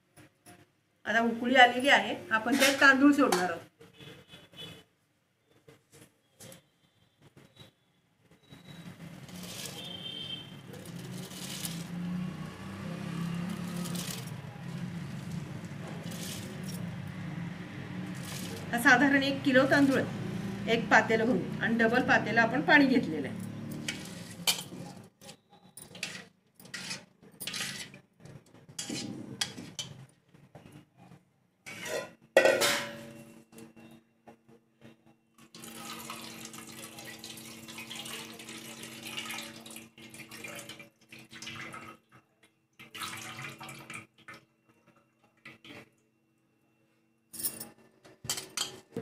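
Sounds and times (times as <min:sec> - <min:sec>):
pot bubbling at the boil: 0:35.4 - 0:41.7.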